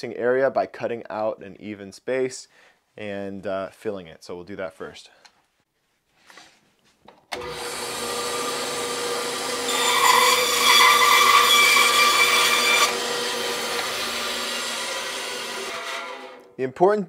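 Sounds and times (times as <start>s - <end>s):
band saw cutting bark: 7.4s - 16.5s
band saw running: 7.4s - 16.5s.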